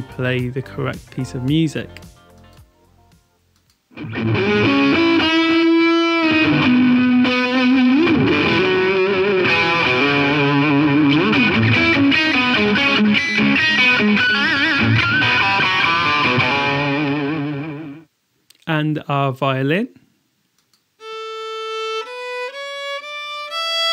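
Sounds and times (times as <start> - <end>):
distorted electric guitar music: 3.9 - 18.1.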